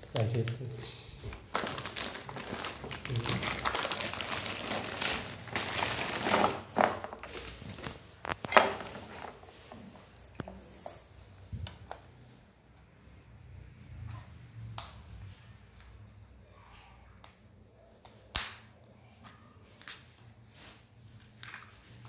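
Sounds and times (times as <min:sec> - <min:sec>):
packaging crinkling and rustling: 0:00.1 - 0:10.5.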